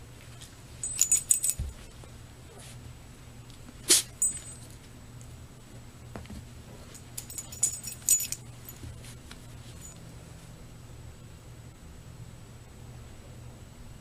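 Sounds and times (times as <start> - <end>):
faint low hum: 0.0 - 14.0
small metallic jingling: 0.8 - 2.0, 4.2 - 4.8, 6.9 - 9.1, 9.7 - 10.0.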